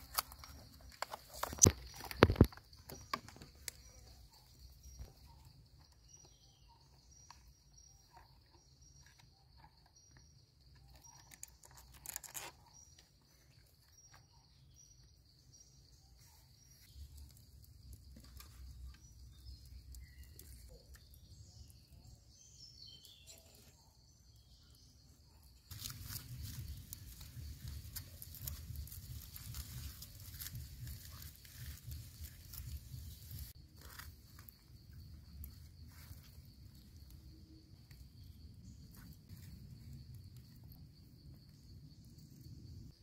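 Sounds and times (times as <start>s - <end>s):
crackling on embers: 0.0s - 5.1s, 16.8s - 22.0s, 25.7s - 42.2s
handling clicks and rustles: 0.0s - 5.2s.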